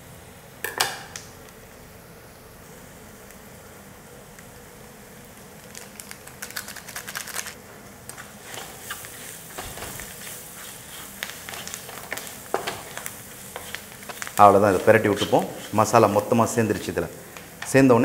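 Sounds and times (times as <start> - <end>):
wooden spatula scraping pan: 8.2 - 16.3.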